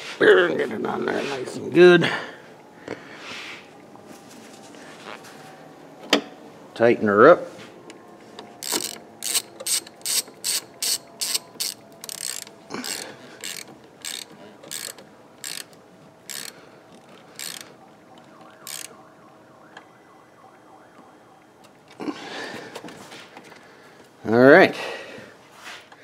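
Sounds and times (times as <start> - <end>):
ratchet wrench clicking: 8.6 - 17.7, 18.6 - 18.9.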